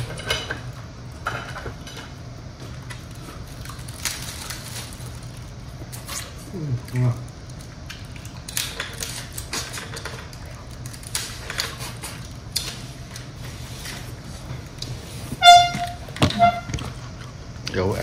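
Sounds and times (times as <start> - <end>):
steady low hum: 0.0 - 18.0
vehicle horn honking: 15.4 - 16.8.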